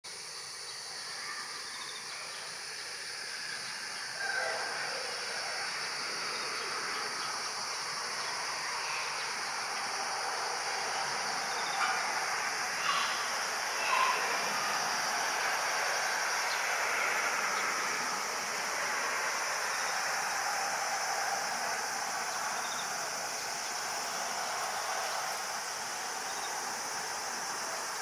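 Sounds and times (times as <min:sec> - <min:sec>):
outdoor background hiss: 0:00.0 - 0:28.0.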